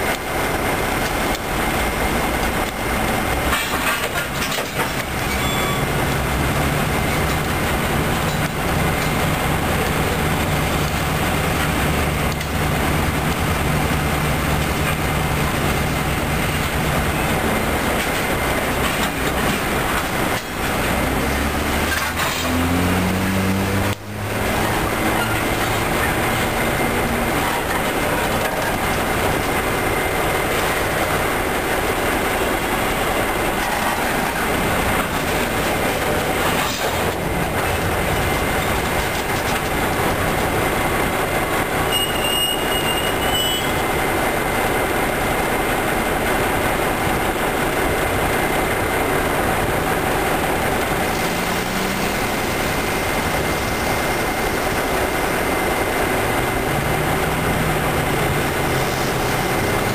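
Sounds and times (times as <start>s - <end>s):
wheels clattering over rail joints: 0.0s - 59.9s
train wheel squeal: 5.0s - 6.0s, 41.9s - 43.9s.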